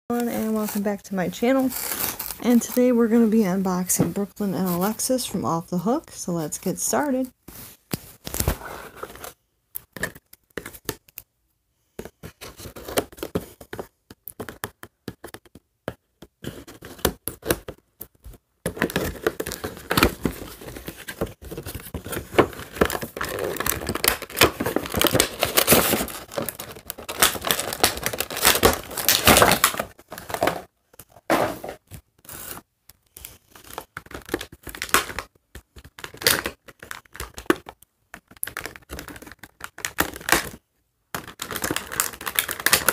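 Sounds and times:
packaging being torn open: 22.3s - 30.4s.

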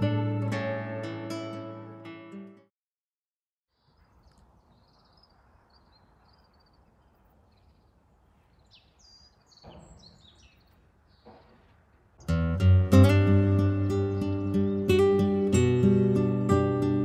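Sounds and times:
birds chirping: 3.7s - 12.4s, 13.3s - 15.4s.

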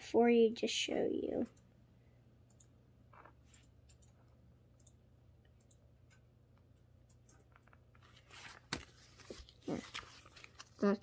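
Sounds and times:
paper rustle: 7.6s - 11.0s.

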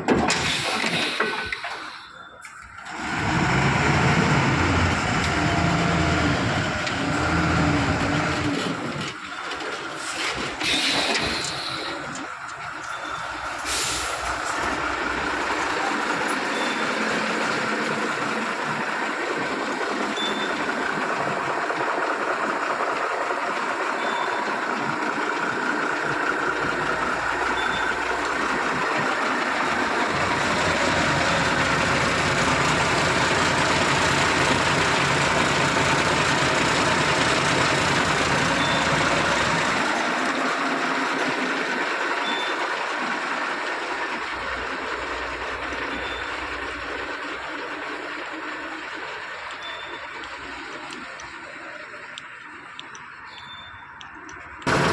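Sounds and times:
heavy truck running: 0.0s - 54.9s
short high beeps: 20.2s - 20.6s, 27.6s - 28.0s, 49.6s - 50.1s, 53.3s - 54.0s.

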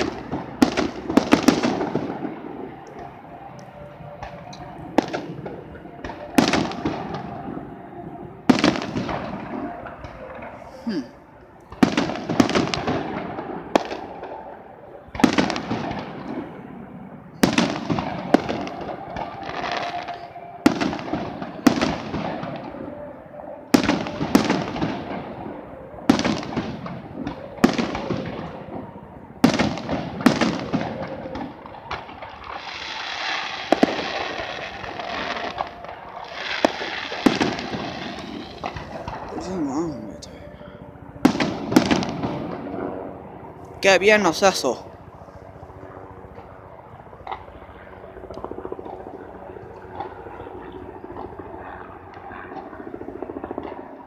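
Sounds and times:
rolling echo: 0.0s - 54.0s
fireworks shells bursting: 32.5s - 39.5s.

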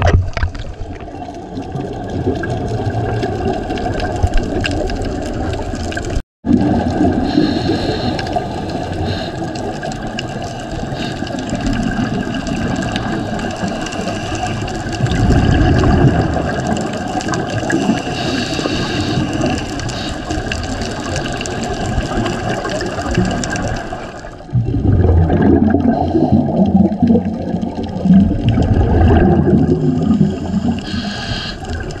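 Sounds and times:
diver breathing through regulator: 7.2s - 9.6s, 17.7s - 20.6s, 25.7s - 26.7s, 29.7s - 32.0s.

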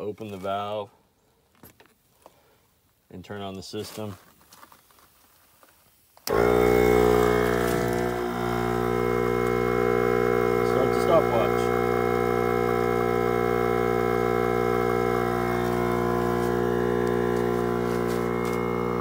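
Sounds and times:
air compressor humming: 6.3s - 19.0s.

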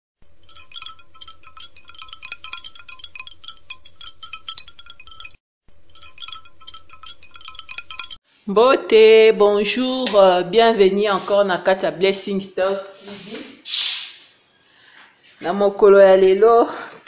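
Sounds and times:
wind chimes tinkling: 0.4s - 8.2s.

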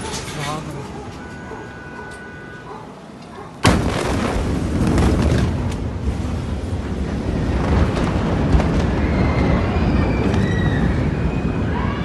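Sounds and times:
explosion boom: 3.6s - 11.8s.

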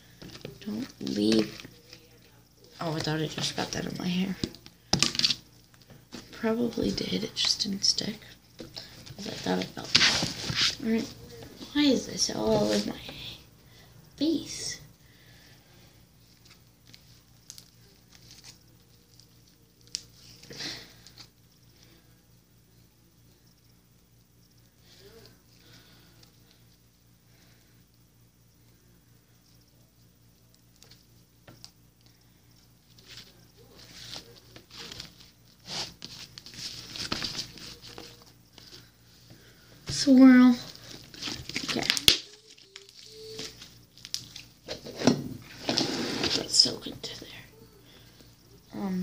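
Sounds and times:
slime crackling and popping: 41.1s - 44.6s.

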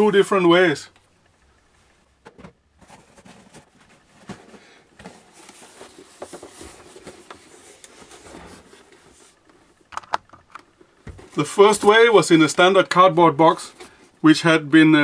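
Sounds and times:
cardboard box handling noise: 2.3s - 9.8s.

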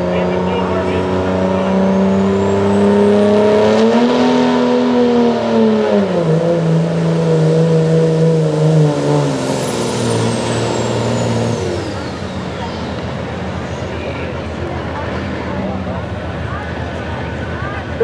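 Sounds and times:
diesel engine at full throttle: 0.0s - 18.0s
turbocharger whistling: 0.2s - 14.1s.

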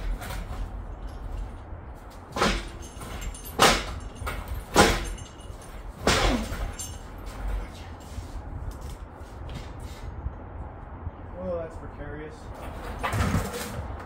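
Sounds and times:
engine hoist clanking and creaking: 0.0s - 9.1s, 12.5s - 14.0s
sharp metal clanks: 2.2s - 7.7s.

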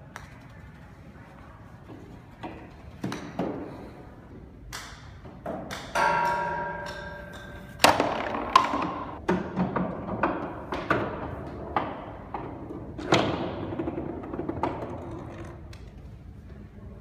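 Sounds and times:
golf ball rolling down wooden chute: 9.4s - 15.7s.

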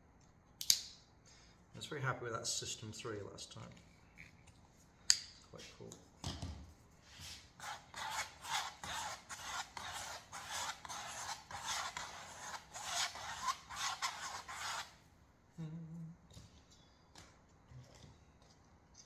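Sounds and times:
stick scraping paint on canvas: 7.1s - 15.0s.

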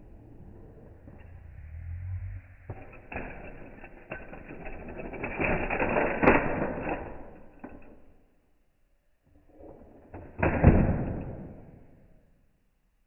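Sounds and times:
toy car rattling on plastic track: 2.8s - 8.4s.

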